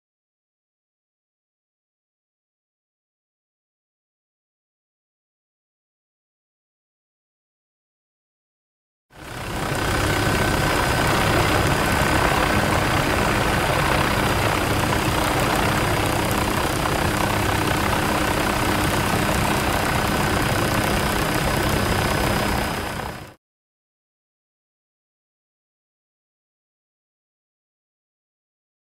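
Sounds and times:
lava fountains rumbling rush: 9.3s - 23.3s.

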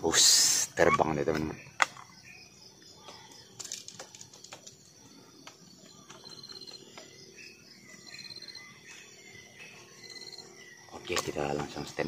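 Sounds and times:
insects humming: 0.0s - 12.0s
bird chirps: 0.7s - 12.0s
gear clicks and rustles: 3.2s - 7.2s.

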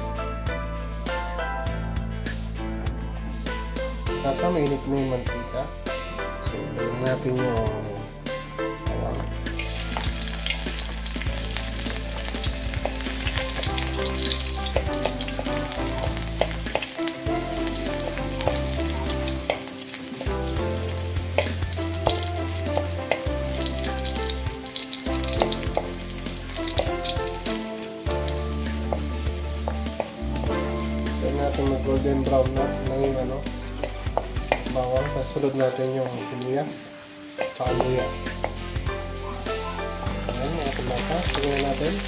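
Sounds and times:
garlic sizzling in hot oil: 9.1s - 42.0s.

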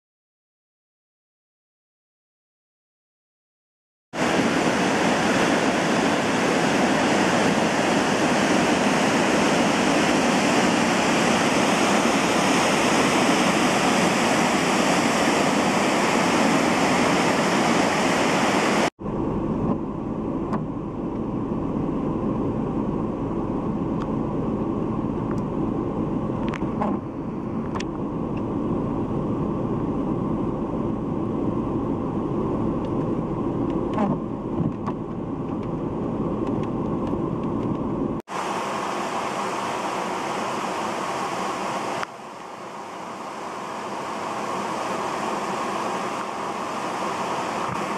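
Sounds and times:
rushing whitewater rapids: 4.2s - 18.9s, 38.3s - 47.9s.

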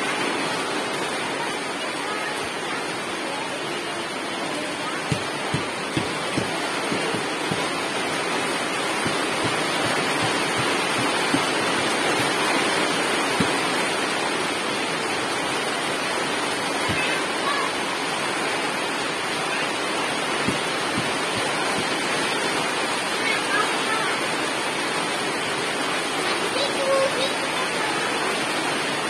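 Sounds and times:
heavy rain on grass and leaves: 0.0s - 29.0s
soft dull taps: 5.1s - 7.8s, 9.0s - 12.5s.

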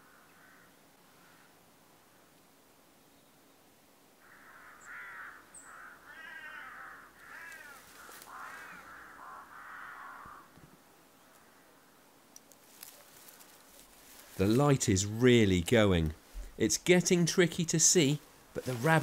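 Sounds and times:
crows cawing: 0.0s - 1.6s, 4.2s - 12.0s.

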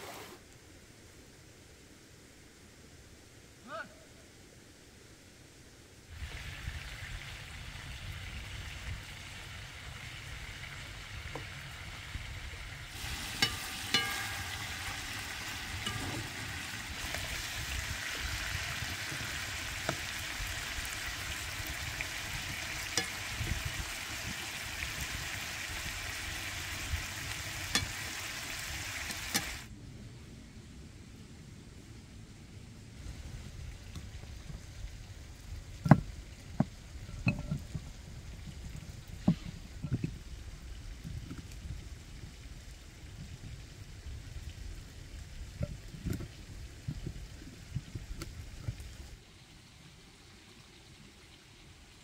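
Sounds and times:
food sizzling in hot oil: 6.1s - 29.7s
utensil knocking pan: 13.1s - 16.6s.

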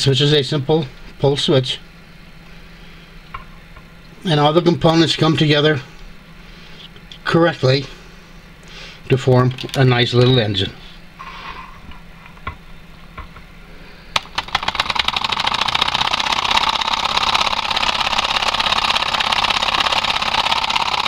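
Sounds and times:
solenoid engine rapid clicking: 14.2s - 21.0s.

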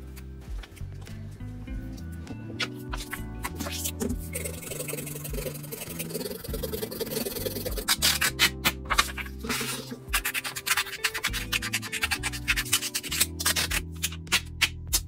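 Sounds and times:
soft background music: 0.0s - 15.0s
scissors cutting paper: 2.6s - 15.0s
pencil shading on paper: 3.0s - 14.1s.

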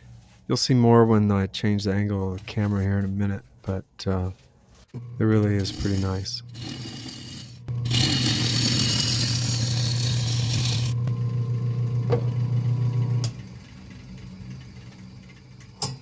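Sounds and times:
wood lathe humming: 5.0s - 15.7s
gouge cutting wood on a lathe: 5.4s - 11.0s.

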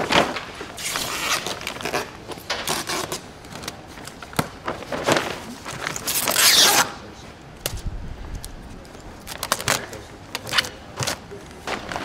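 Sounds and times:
packing tape ripped off roll: 0.0s - 7.0s, 9.2s - 11.3s.

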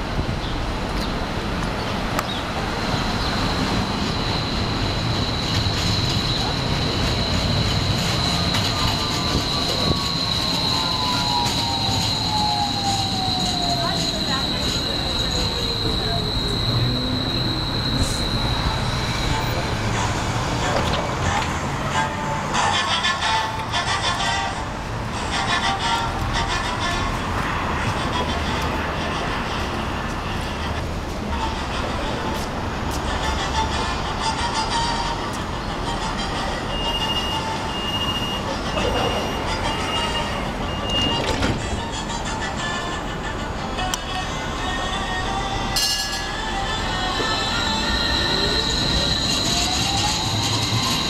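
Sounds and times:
streetcar motor whine: 0.0s - 51.0s
high-pitched whine: 2.5s - 29.6s, 44.0s - 51.0s
high door warning beeps: 3.4s - 19.4s, 39.7s - 41.6s.

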